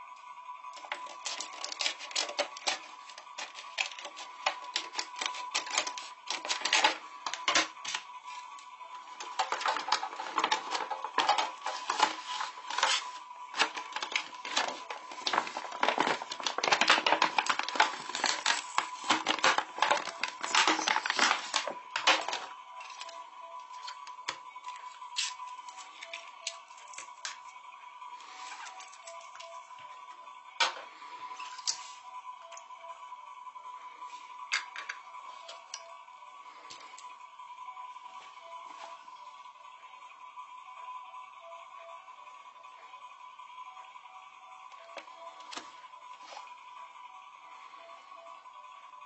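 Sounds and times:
plastic packaging crinkling: 0.8 - 8.0, 9.2 - 23.1
faint steady high tone: 19.0 - 49.0.

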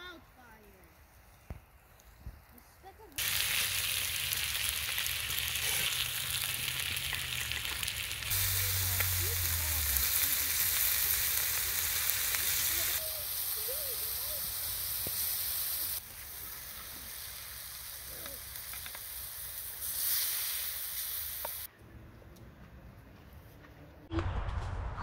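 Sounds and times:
food sizzling on hot stone: 3.2 - 21.7.

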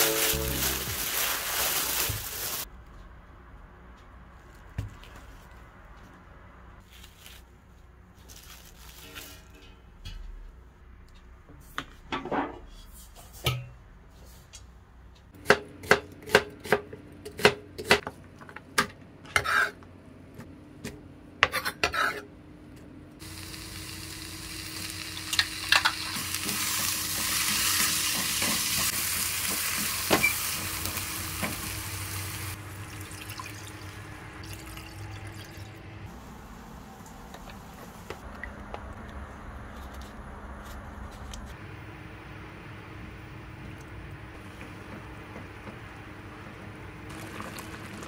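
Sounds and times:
food sizzling in pan: 0.0 - 2.7, 23.2 - 32.6.

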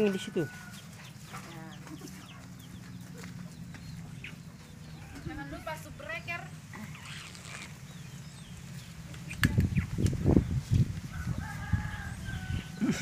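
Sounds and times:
rooster crowing: 0.0 - 1.0, 11.1 - 13.0.

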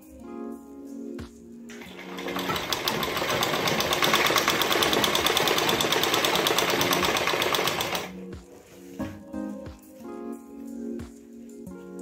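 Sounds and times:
sewing machine running: 1.7 - 8.1.

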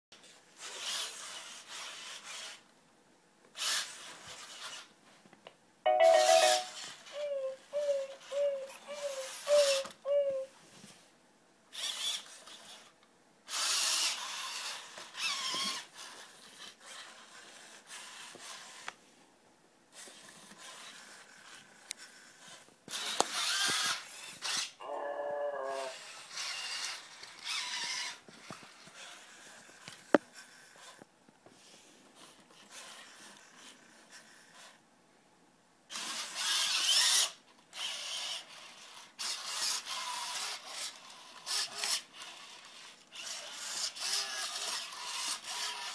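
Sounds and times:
robot servo motors whirring: 3.6 - 4.9, 11.7 - 12.9, 13.5 - 18.8, 19.9 - 24.7, 25.7 - 31.0, 35.9 - 45.9
brief electronic tone: 5.9 - 6.9.

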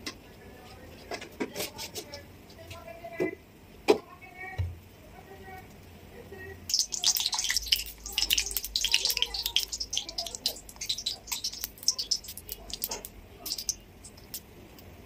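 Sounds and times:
oil crackling and popping: 6.7 - 14.9.

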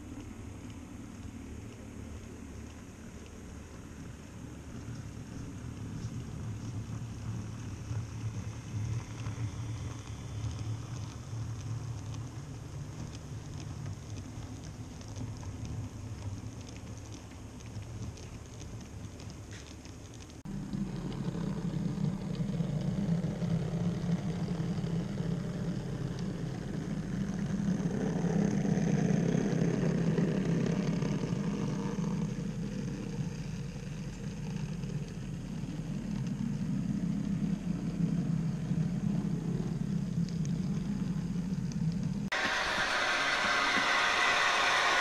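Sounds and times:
wheels rumbling on track: 0.0 - 45.0
model train motor hum: 42.3 - 45.0.

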